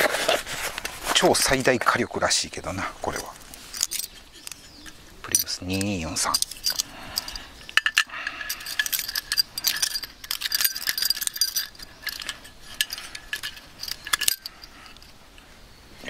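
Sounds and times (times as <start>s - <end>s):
metallic clicks of stove parts: 3.8s - 15.1s.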